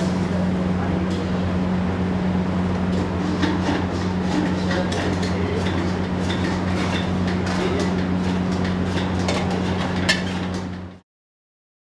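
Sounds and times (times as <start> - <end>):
low hum and rush: 0.0 - 11.0.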